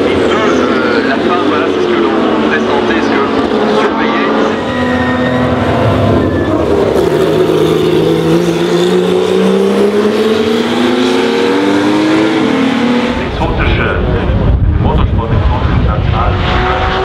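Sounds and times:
race car engine accelerating: 0:00.0 - 0:17.0.

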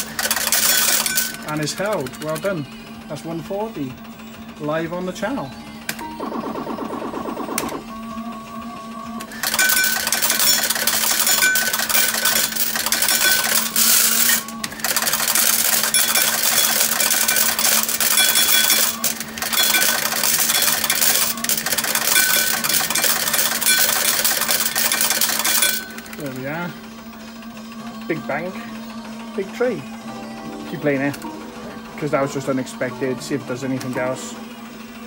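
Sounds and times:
coins clattering into tray: 0:00.0 - 0:02.4, 0:09.3 - 0:26.2
electronic jingle: 0:06.0 - 0:07.9.

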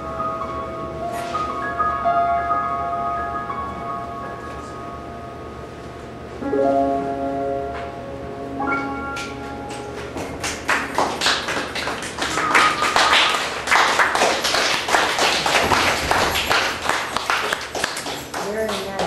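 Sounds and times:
audience applauding: 0:10.0 - 0:19.0.

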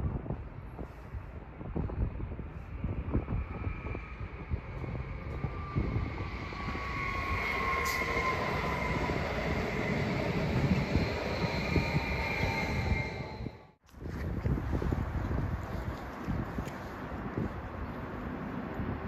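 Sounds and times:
train wheels rumbling on rails: 0:03.4 - 0:13.7
train motor whine: 0:04.8 - 0:13.7.

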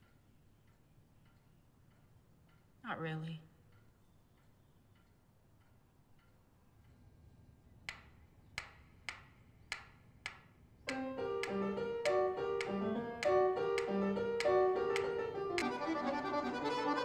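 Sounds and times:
metronome ticking: 0:07.8 - 0:17.0
accordion playing chords and tune: 0:10.9 - 0:17.0.

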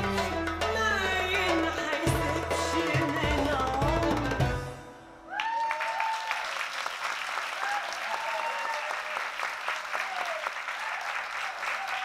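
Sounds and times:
people whooping and cheering: 0:05.2 - 0:06.8, 0:07.4 - 0:12.0
audience clapping: 0:05.3 - 0:12.0.

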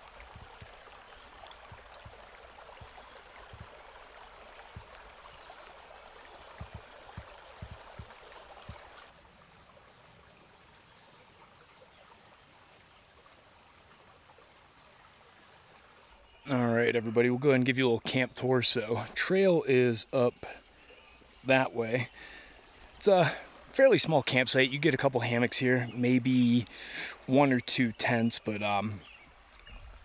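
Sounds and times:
stream water rushing: 0:00.0 - 0:30.0
soft low thumps: 0:06.6 - 0:08.9.

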